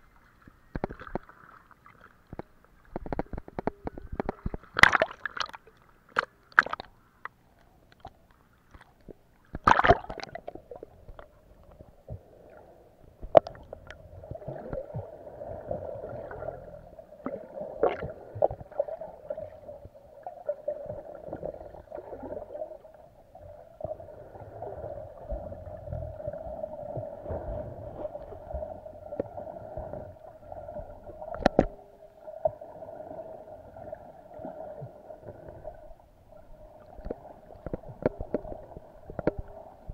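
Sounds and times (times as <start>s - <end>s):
water splashing against camera: 0.0s - 12.3s, 13.2s - 15.2s, 25.2s - 31.9s
underwater clicks and gurgles: 0.0s - 39.9s
muffled underwater hum: 23.1s - 32.1s.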